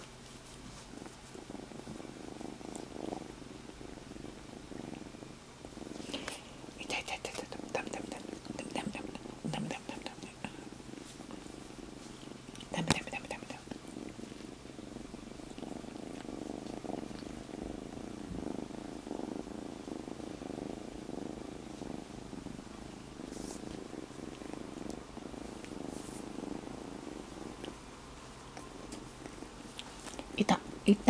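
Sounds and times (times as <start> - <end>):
kitten purring: 0.0 - 31.0
rustles of movement: 13.7 - 30.4.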